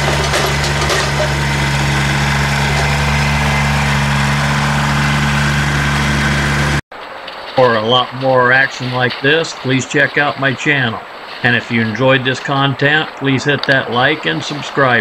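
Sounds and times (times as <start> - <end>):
tractor diesel engine running: 0.0 - 6.8.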